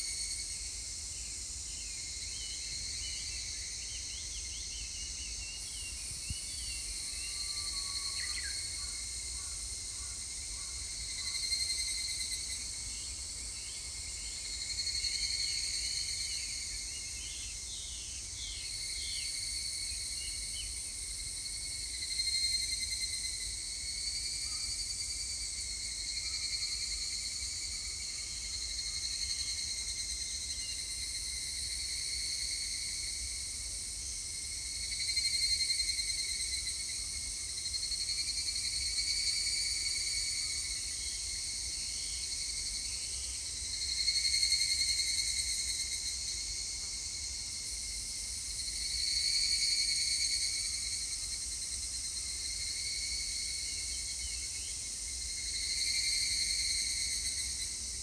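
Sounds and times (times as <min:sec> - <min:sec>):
cicadas calling: 0:00.0 - 0:33.4, 0:34.0 - 0:58.0.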